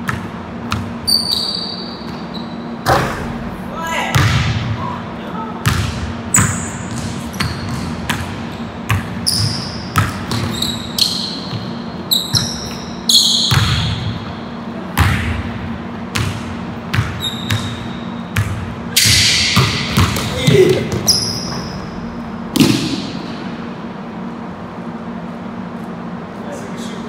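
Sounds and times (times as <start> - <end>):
sneaker squeaks: 0.0 - 3.3, 5.6 - 15.2, 16.2 - 22.2
basketball bouncing on hardwood: 8.9 - 10.6, 19.6 - 21.1.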